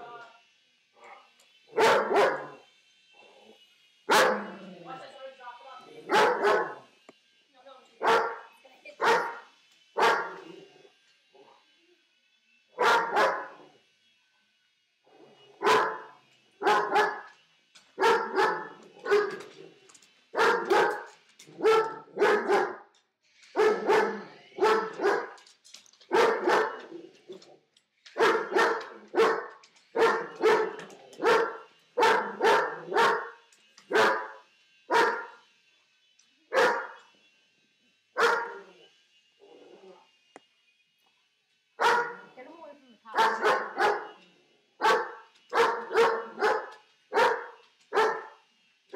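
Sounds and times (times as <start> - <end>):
dog barking: 1.0 - 2.6, 4.1 - 4.7, 6.0 - 6.9, 8.0 - 10.5, 12.8 - 13.6, 15.6 - 17.3, 18.0 - 19.5, 20.4 - 22.8, 23.6 - 25.4, 26.1 - 26.9, 28.2 - 35.4, 36.5 - 37.0, 38.2 - 38.6, 41.8 - 42.3, 43.1 - 44.2, 44.8 - 48.4.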